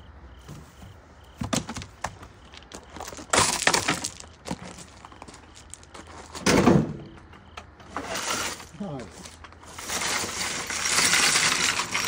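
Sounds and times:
footsteps crunching on gravel: 0:00.4 - 0:06.4.

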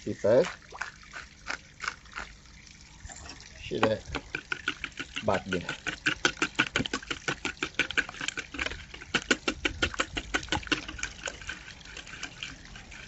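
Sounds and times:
wire whisk beating eggs: 0:03.7 - 0:13.0.

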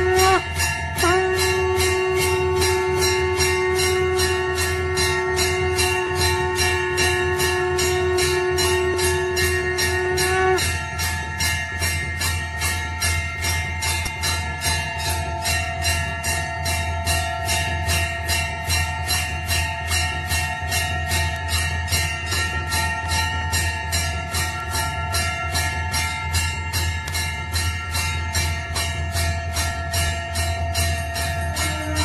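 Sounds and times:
held musical notes: 0:00.0 - 0:11.2, 0:30.2 - 0:32.0
music with jingling bell rhythm: 0:00.0 - 0:32.0.

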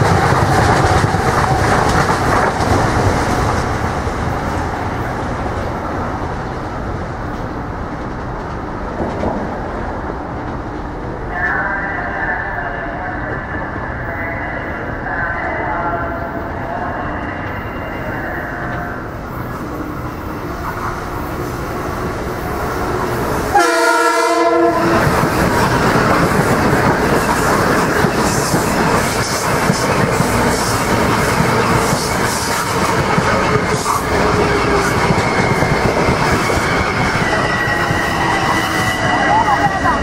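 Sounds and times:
wheels rushing on rails: 0:00.0 - 0:11.4, 0:18.6 - 0:40.0
electric train rolling noise: 0:00.0 - 0:40.0
train horn blast: 0:23.5 - 0:25.2.

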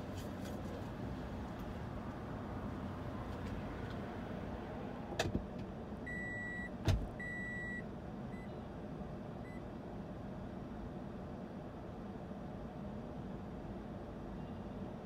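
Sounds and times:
road traffic passing: 0:00.0 - 0:06.1.

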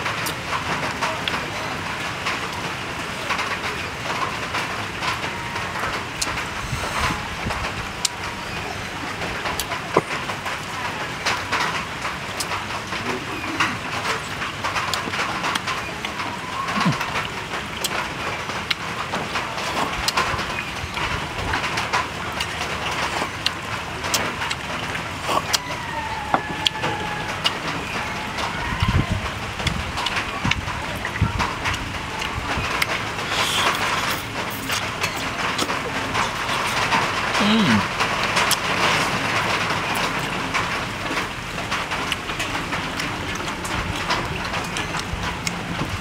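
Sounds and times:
outdoor hiss: 0:33.1 - 0:40.8.

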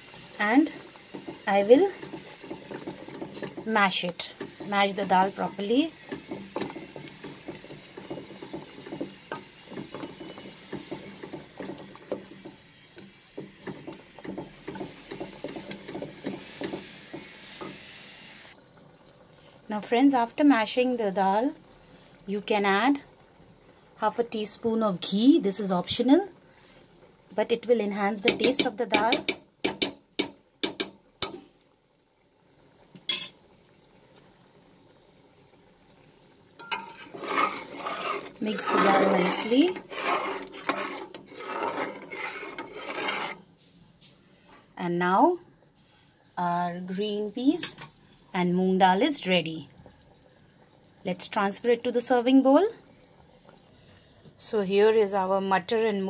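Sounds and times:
wet stirring: 0:00.0 - 0:17.8, 0:36.6 - 0:44.2
faint bubbling simmering: 0:00.0 - 0:56.0
wooden masher knocking on pot: 0:00.8 - 0:12.6, 0:13.4 - 0:17.7, 0:28.2 - 0:31.4.

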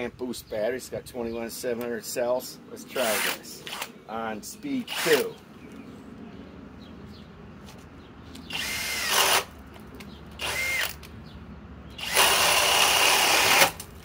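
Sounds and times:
drill boring into wood: 0:08.5 - 0:09.5, 0:10.4 - 0:11.0, 0:12.0 - 0:13.8.

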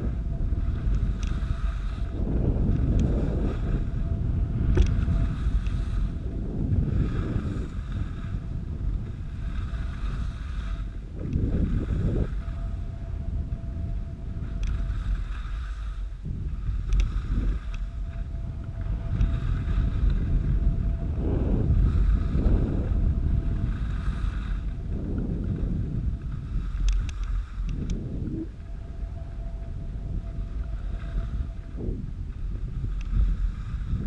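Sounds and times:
wind buffeting microphone: 0:00.0 - 0:34.0
ski edges scraping snow: 0:04.9 - 0:06.1, 0:09.4 - 0:10.8.

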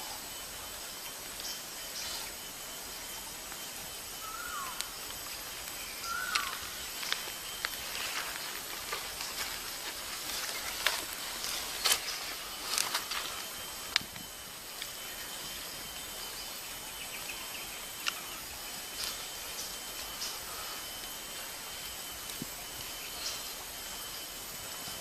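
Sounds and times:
insects hissing: 0:00.0 - 0:25.0
falling bird chirps: 0:05.9 - 0:08.4.

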